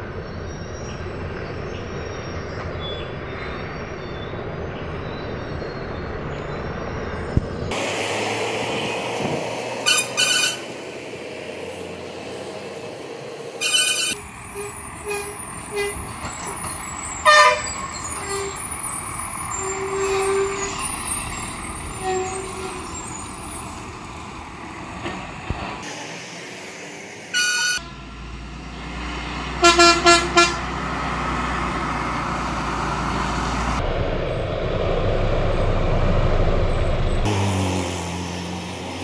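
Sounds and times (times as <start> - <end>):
heavy truck engines running: 0.0 - 39.0
vehicle horns honking: 9.8 - 10.8, 13.6 - 18.6, 19.5 - 20.9, 21.9 - 23.2, 27.3 - 28.4, 29.6 - 30.8.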